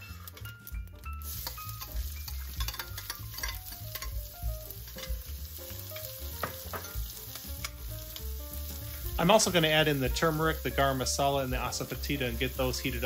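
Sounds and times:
onion sizzling in oil: 0.0s - 13.0s
metal spoon scraping pot: 1.4s - 4.2s.

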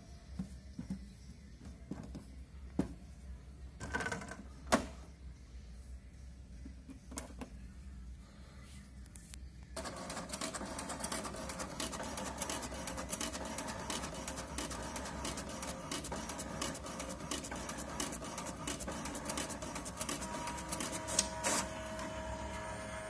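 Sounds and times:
printer paper feed whir: 9.8s - 23.0s.

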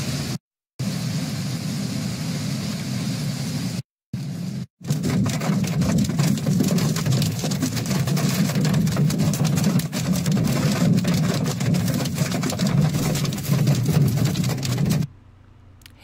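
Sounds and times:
hail on car roof: 4.8s - 15.1s
low steady hum: 13.0s - 16.0s.

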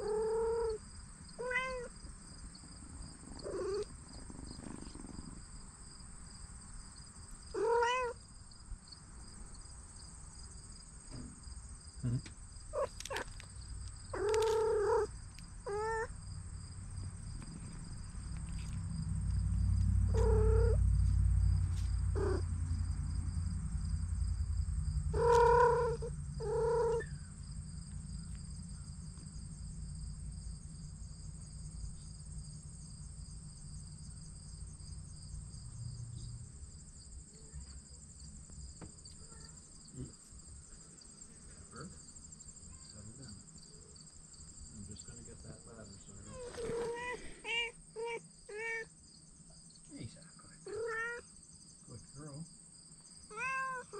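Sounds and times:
cats meowing: 0.0s - 0.8s, 1.4s - 2.0s, 3.4s - 3.9s, 7.5s - 8.2s, 12.1s - 13.4s, 14.1s - 16.2s, 20.1s - 20.8s, 22.2s - 22.5s, 25.2s - 27.1s, 46.2s - 48.9s, 50.6s - 51.3s, 53.3s - 53.9s
cat purring: 2.8s - 5.7s, 14.1s - 16.1s, 20.1s - 21.1s, 46.2s - 47.4s.

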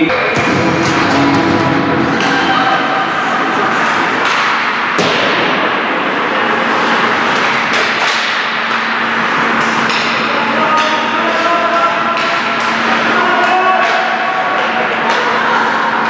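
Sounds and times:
sharp crack: 3.8s - 5.9s
sticks and puck knocking: 7.4s - 11.2s, 12.1s - 15.3s.

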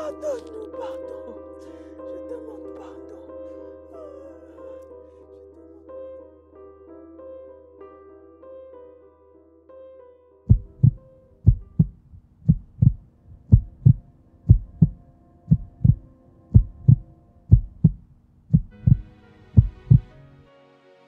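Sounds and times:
soft sustained music: 0.0s - 21.0s
heartbeat thumps: 10.5s - 20.1s.

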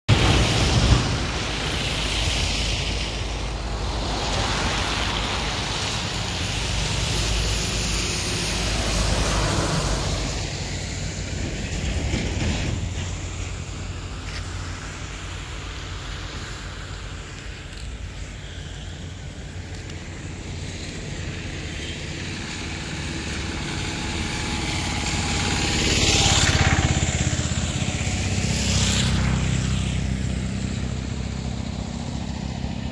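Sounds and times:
gusty wind buffeting microphone: 0.1s - 32.9s
rain hiss: 0.1s - 32.9s.

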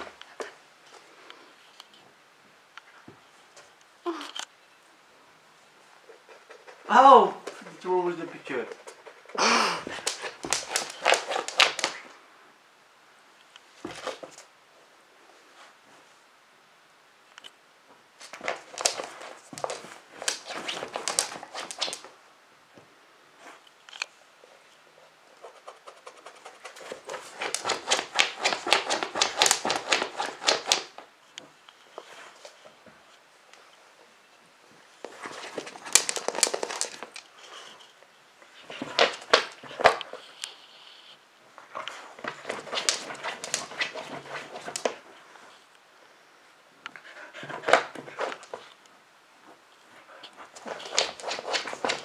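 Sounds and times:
dog pawing at fabric: 9.9s - 12.0s, 26.1s - 30.9s, 42.2s - 45.0s, 50.6s - 52.0s.

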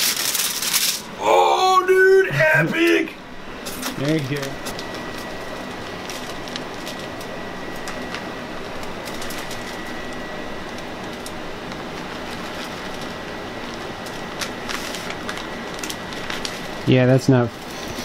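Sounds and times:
cheese shaken from plastic bag: 0.0s - 1.1s
faint high whine: 0.0s - 18.0s.

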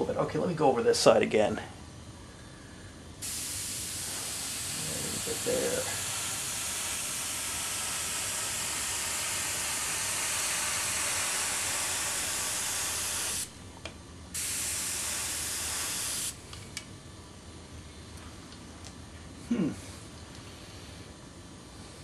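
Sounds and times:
airbrush spraying hiss: 3.2s - 13.6s, 14.3s - 16.4s.

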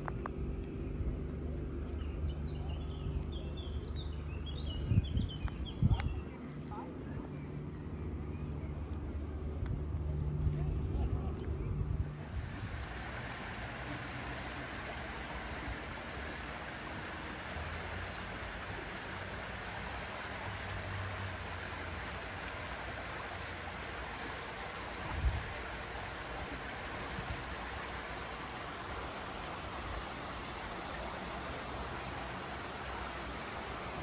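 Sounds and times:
stream water rushing: 12.0s - 34.0s.

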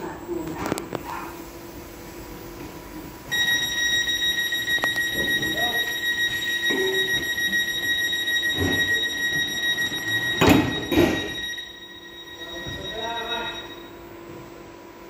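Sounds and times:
train door warning tone: 3.3s - 14.1s
faint whine: 3.3s - 14.6s.

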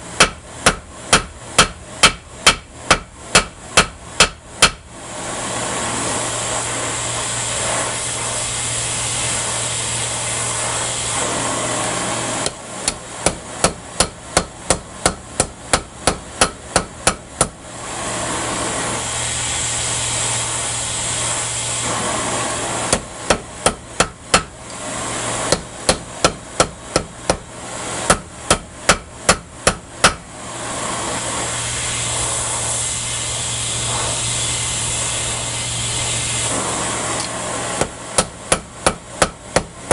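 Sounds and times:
forge hissing: 0.0s - 39.9s
hammer striking metal on anvil: 0.2s - 4.8s, 12.4s - 17.6s, 22.9s - 24.5s, 25.5s - 27.4s, 28.1s - 30.2s, 37.8s - 39.9s.

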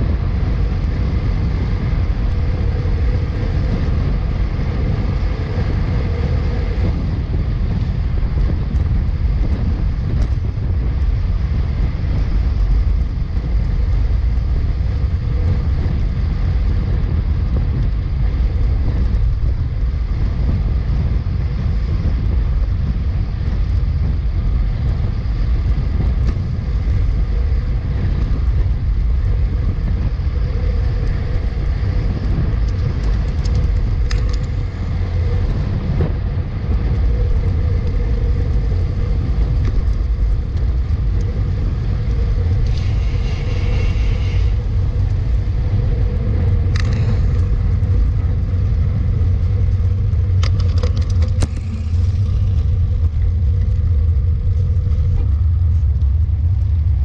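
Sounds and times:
road traffic: 0.0s - 57.0s
wind rumble on microphone: 0.0s - 57.0s.

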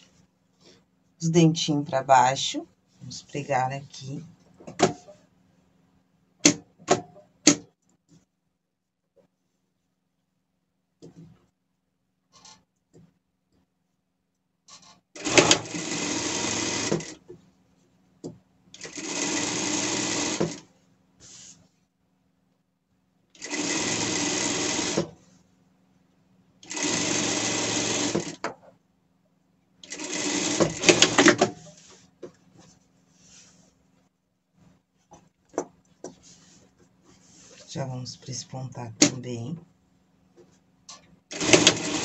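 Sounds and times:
sewing machine stitching: 14.7s - 17.2s, 18.8s - 20.7s, 23.4s - 25.2s, 26.6s - 28.4s, 29.8s - 31.5s, 41.3s - 42.0s.

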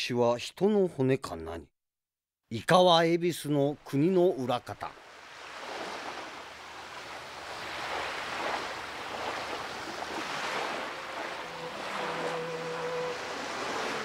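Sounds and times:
sea waves surging: 5.0s - 14.0s.

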